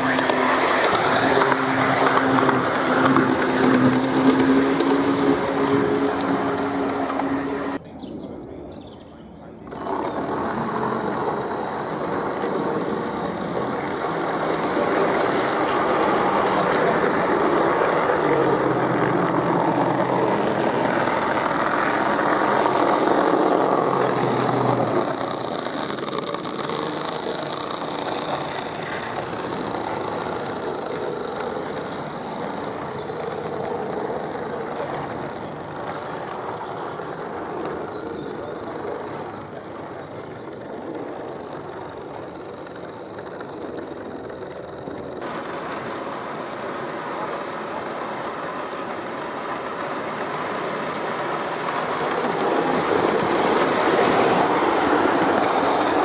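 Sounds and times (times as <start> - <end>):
coaches rolling by: 0.0 - 56.0
model diesel locomotives passing: 0.0 - 56.0.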